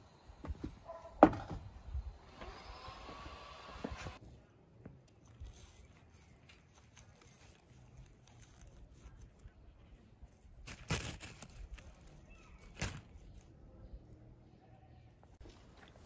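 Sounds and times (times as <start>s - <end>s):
leafy stem rustling: 5.0s - 13.7s.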